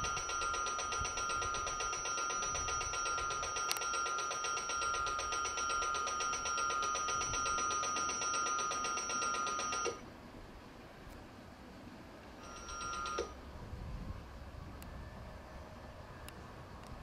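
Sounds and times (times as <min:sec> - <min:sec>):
railway warning bell ringing: 0:00.0 - 0:10.0, 0:12.4 - 0:13.4
passing train rumble: 0:13.4 - 0:17.0.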